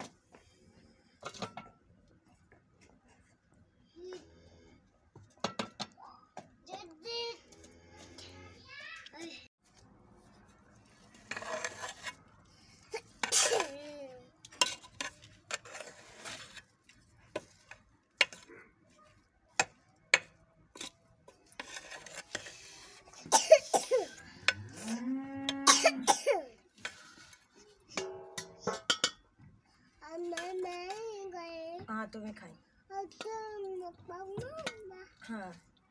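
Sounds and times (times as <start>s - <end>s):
metal ladle clinking on pot: 28.0s - 29.2s.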